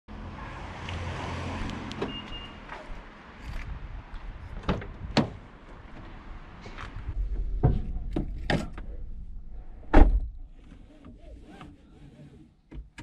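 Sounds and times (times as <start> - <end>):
high beep: 2.1 - 2.6.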